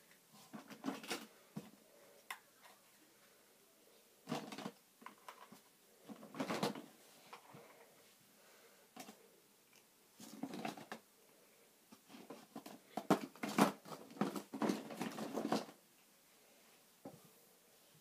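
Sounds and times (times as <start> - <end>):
small toys clattering and rustling: 0.4 - 3.0, 4.2 - 7.8, 10.2 - 11.1, 11.9 - 15.8.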